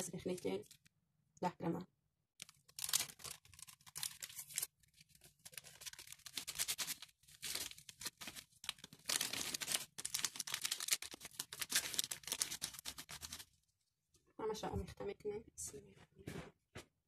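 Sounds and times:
paper sachet rustling and crinkling: 0:02.4 - 0:13.6.

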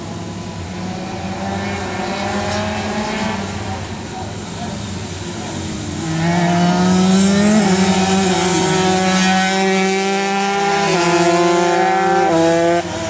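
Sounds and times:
motorcycle engine at high revs: 0:05.5 - 0:13.0.

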